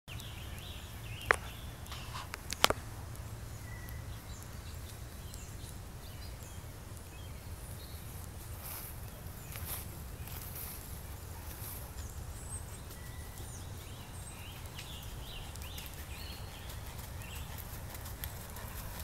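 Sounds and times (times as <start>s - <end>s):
sharp clicks: 0.2s - 3.3s
faint bird chirps: 3.4s - 19.0s.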